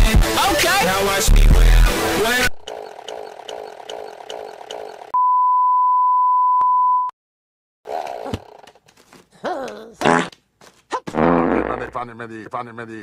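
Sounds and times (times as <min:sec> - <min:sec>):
repeating edited loop: 0:00.0 - 0:05.2.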